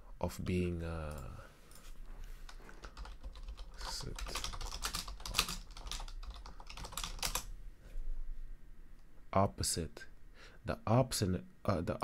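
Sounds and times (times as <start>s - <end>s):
keyboard typing: 2.5s - 7.5s.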